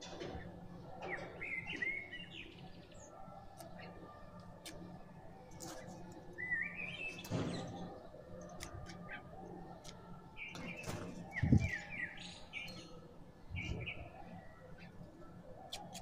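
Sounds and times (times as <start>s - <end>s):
birds chirping: 0.0s - 16.0s
beak pecking on concrete: 3.5s - 11.8s, 15.6s - 16.0s.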